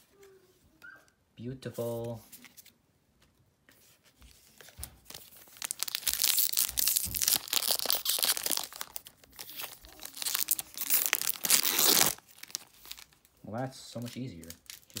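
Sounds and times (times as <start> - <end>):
foil wrapper tearing and crinkling: 5.0 - 13.3, 14.1 - 15.0.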